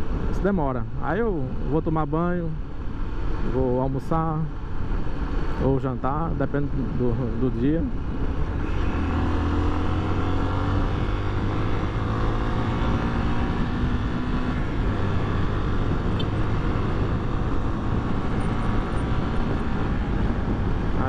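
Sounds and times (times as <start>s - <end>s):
rush of wind noise: 0.0s - 21.0s
motorcycle engine accelerating: 8.2s - 21.0s.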